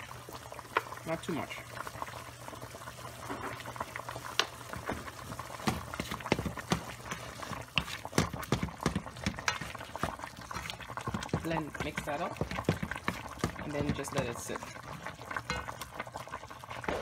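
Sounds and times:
meat sizzling: 0.0 - 17.0
wooden spoon scraping a metal pot: 5.7 - 16.0.

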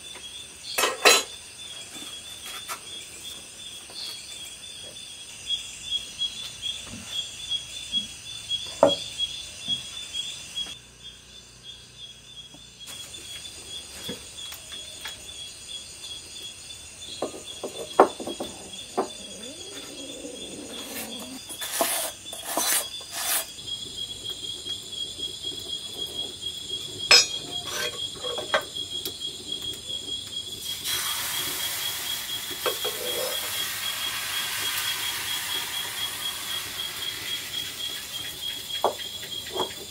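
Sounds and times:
crickets chirping: 0.0 - 39.9
clay pots and utensils clinking: 0.8 - 1.4, 27.0 - 28.8, 32.6 - 33.6
pan hissing over fire: 17.2 - 39.6.

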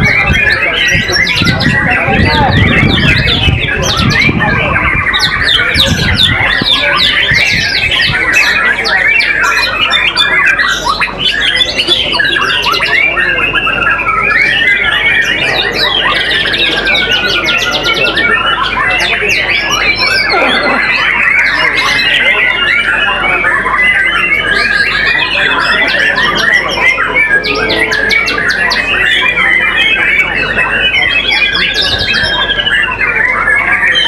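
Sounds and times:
songbirds singing whistles and trills: 0.0 - 34.0.

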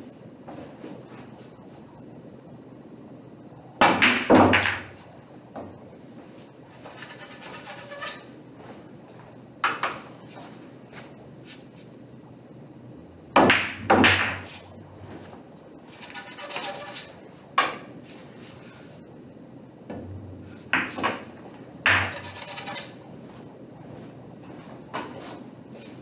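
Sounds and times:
pool balls clacking: 3.8 - 5.0, 13.3 - 17.0, 19.9 - 23.0.

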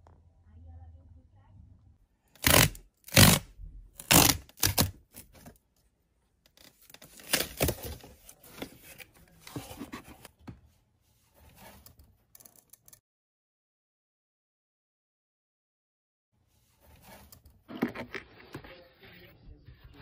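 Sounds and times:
cardboard tear strip ripping: 2.4 - 5.3, 6.6 - 8.1.

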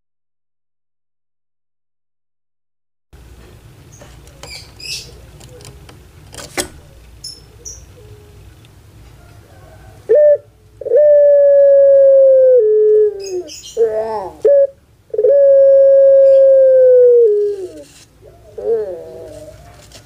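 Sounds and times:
doves cooing: 9.2 - 20.0.

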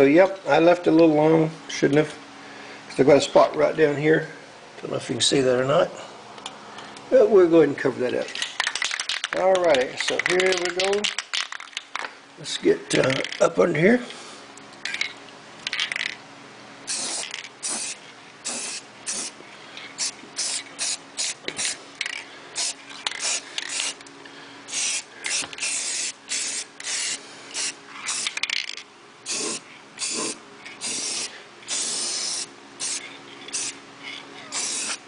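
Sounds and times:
spray paint can hissing bursts: 16.9 - 19.4, 20.0 - 24.0, 24.7 - 33.8, 34.5 - 35.0.

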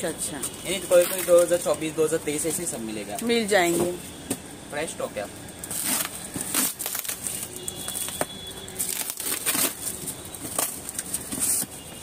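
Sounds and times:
packing tape ripping: 0.9 - 1.7, 5.6 - 11.8
cardboard rustling: 5.7 - 12.0.

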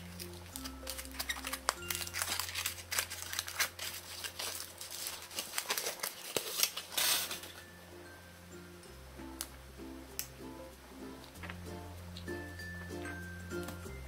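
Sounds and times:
foil wrapper crinkling and tearing: 0.0 - 7.6.

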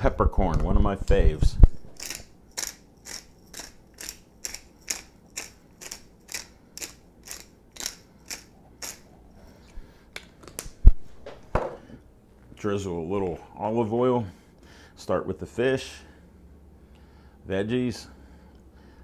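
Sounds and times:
pepper grinder grinding: 1.8 - 9.2.

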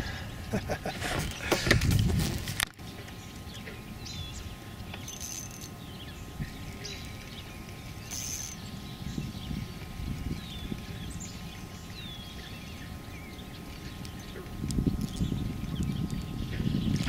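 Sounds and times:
wind rumble: 0.0 - 2.7, 5.7 - 17.0
birds chirping: 0.0 - 17.0
microphone handling noise: 0.7 - 2.8, 14.6 - 17.0.

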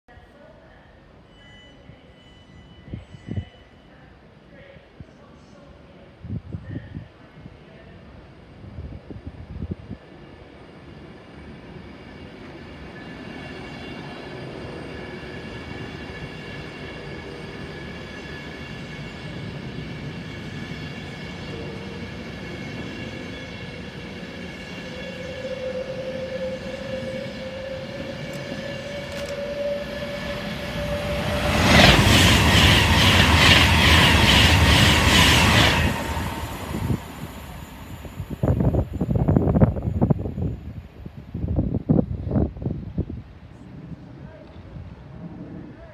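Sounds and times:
electric train whine: 8.2 - 45.8
train wheel clatter: 28.2 - 29.7.

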